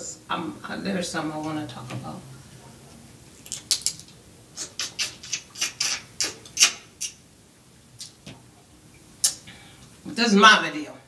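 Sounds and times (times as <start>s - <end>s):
wet eating mouth sounds: 3.4s - 7.2s, 8.0s - 8.2s, 9.2s - 9.5s.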